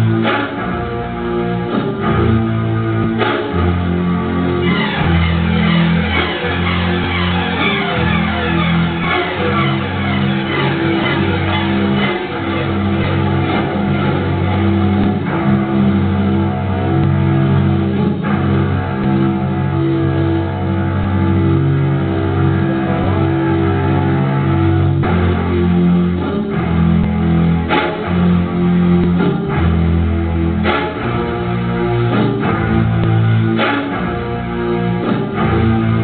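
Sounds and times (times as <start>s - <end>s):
guitar-led music with bass: 0.0s - 36.0s.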